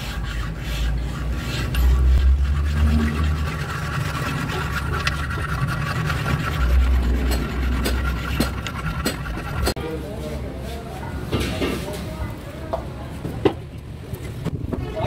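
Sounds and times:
hand scraping metal: 0:00.0 - 0:09.8.

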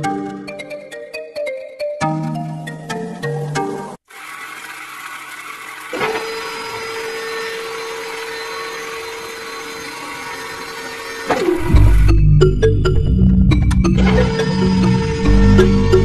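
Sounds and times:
small motor whining: 0:04.0 - 0:12.2.

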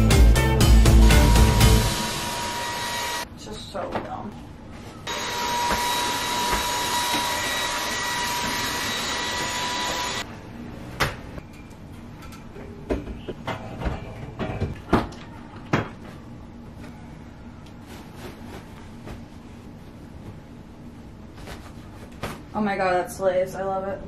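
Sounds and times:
stick vacuum whining: 0:00.8 - 0:03.2, 0:05.1 - 0:10.2.

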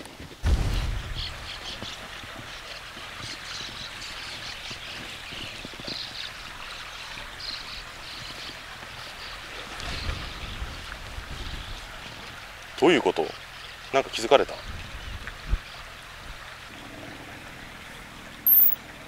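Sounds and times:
water trickling in a canal: 0:00.9 - 0:19.0
short high chirps: 0:18.5 - 0:18.8.

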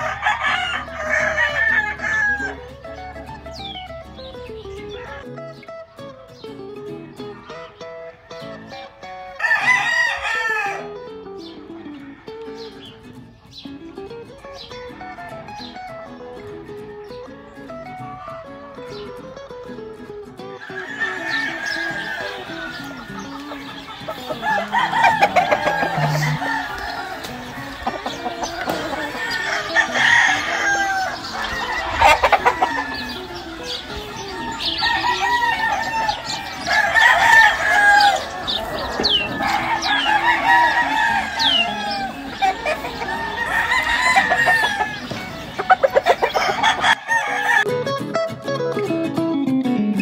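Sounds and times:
roosters crowing: 0:00.0 - 0:03.8, 0:07.9 - 0:13.1, 0:20.6 - 0:47.8
hens clucking: 0:00.0 - 0:05.2, 0:20.4 - 0:47.7.

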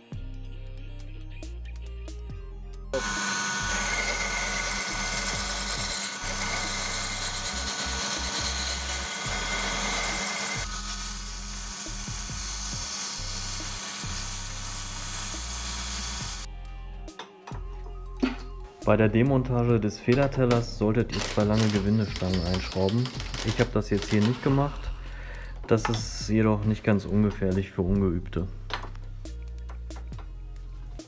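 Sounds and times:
file rasping on spinning bolt: 0:03.0 - 0:11.5
bench lathe running: 0:03.0 - 0:16.5.

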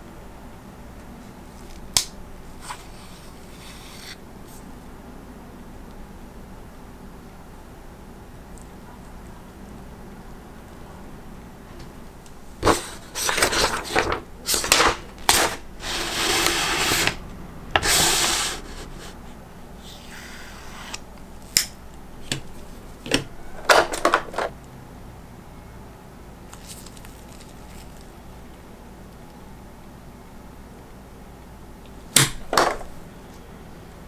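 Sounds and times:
scraping and rustling: 0:12.6 - 0:17.2.

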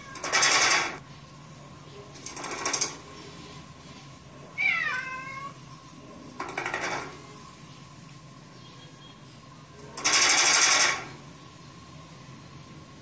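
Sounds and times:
cat meowing: 0:04.6 - 0:05.6
short noisy bursts: 0:10.0 - 0:11.2.

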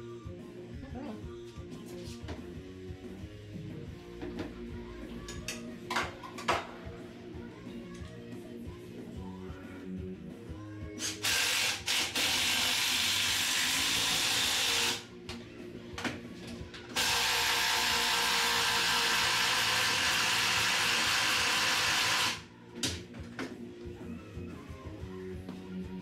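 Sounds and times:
background music: 0:00.0 - 0:26.0
pneumatic air tool hissing: 0:11.0 - 0:15.0.

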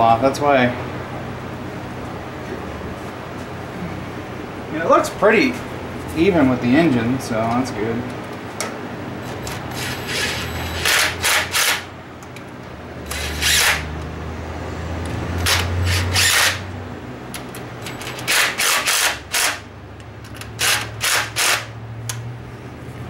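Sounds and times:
steady low hum: 0:00.0 - 0:23.0
cordless drill driving bolt: 0:09.4 - 0:11.8, 0:13.0 - 0:13.9, 0:15.4 - 0:16.6, 0:17.8 - 0:19.6, 0:20.3 - 0:22.2.

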